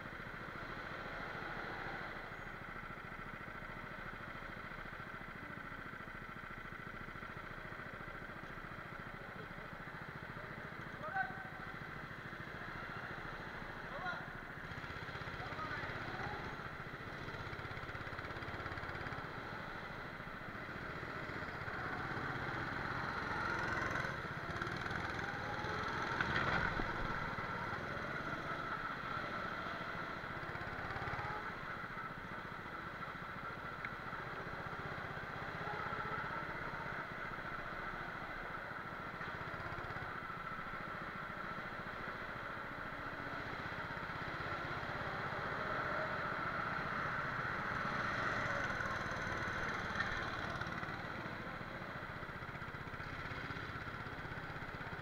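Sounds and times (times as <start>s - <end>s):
go-kart engine: 0.0s - 55.0s.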